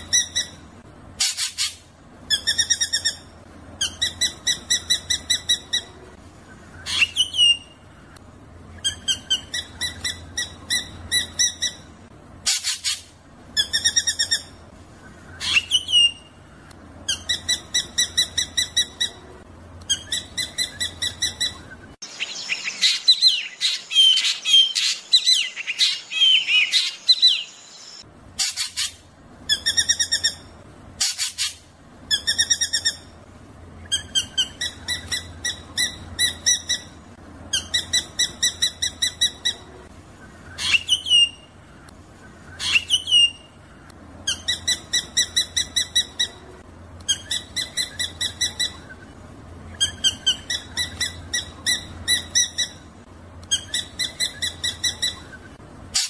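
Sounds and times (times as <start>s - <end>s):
bird chattering and whistling: 1.2s - 7.8s, 8.8s - 16.4s, 17.1s - 30.4s, 33.8s - 41.5s, 42.3s - 43.6s, 47.0s - 52.8s, 53.5s - 56.0s.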